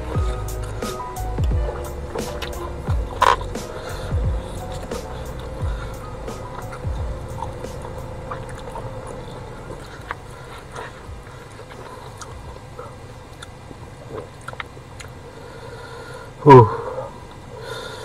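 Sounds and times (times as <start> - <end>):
steady low hum: 0.0 - 18.0
person chewing with wet clicks: 6.4 - 15.3.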